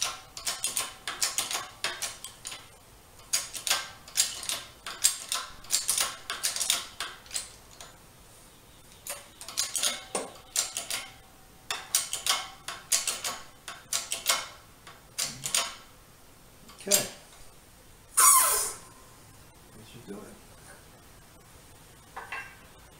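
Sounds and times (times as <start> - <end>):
hydraulic jack pump clicking: 0.0 - 7.9.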